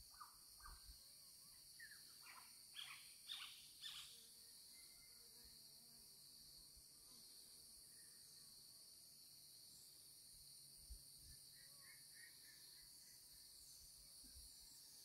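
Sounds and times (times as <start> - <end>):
insect chorus: 0.0 - 15.0
soft bird chirps: 1.8 - 5.2.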